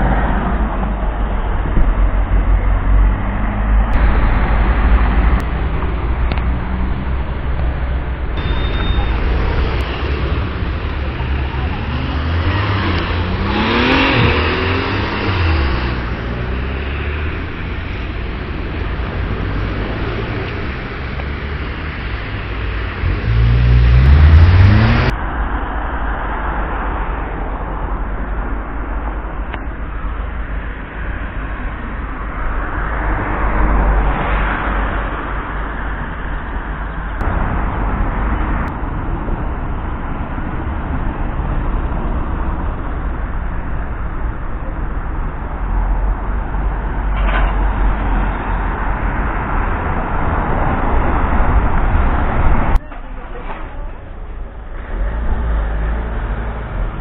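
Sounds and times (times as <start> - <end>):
low rumble of street traffic: 0.0 - 57.0
vehicle engine accelerating: 2.0 - 25.3.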